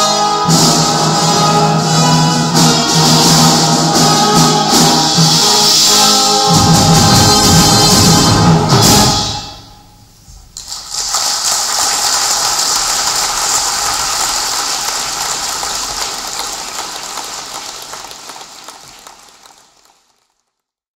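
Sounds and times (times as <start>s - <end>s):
wind band chord: 0.0s - 10.3s
audience applause: 10.6s - 20.7s.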